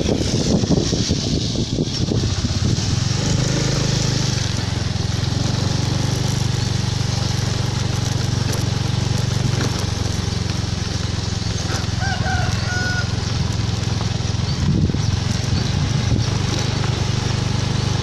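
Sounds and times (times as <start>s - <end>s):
wind buffeting microphone: 0.0s - 6.8s, 13.7s - 17.0s
motorcycle engine running: 0.0s - 18.0s.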